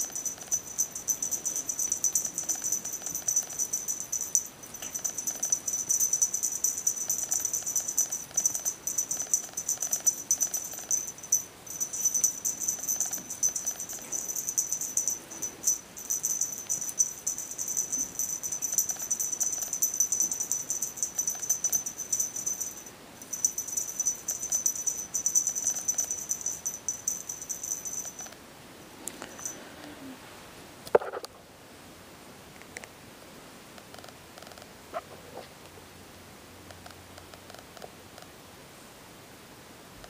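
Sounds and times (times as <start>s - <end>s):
cat toy strands rattling: 0.0s - 28.4s.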